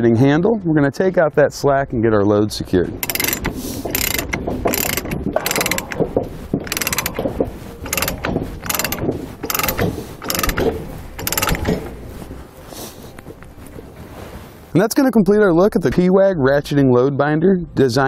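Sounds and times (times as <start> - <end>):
ratchet pawl clicking: 3.0 - 12.2.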